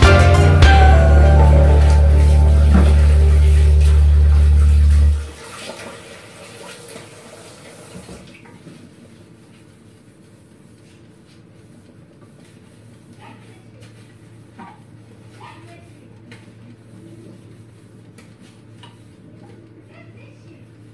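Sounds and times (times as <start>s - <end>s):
music with deep bass: 0.0s - 5.3s.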